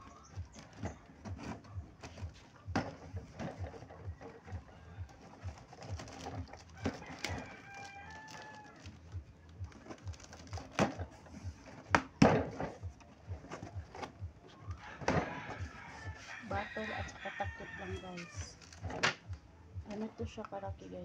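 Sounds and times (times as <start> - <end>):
packing tape ripping: 5.5 - 9.0, 9.6 - 11.0, 18.3 - 19.3.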